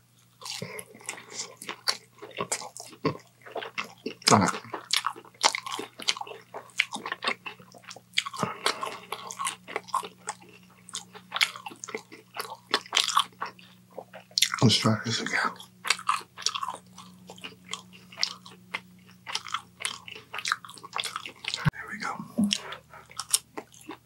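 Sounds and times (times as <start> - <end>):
faint low hum: 0.0 - 24.0
person chewing and smacking: 0.2 - 24.0.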